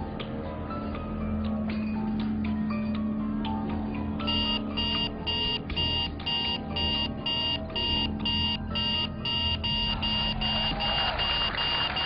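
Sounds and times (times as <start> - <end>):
high-pitched electronic beeps: 4.2 - 12.0.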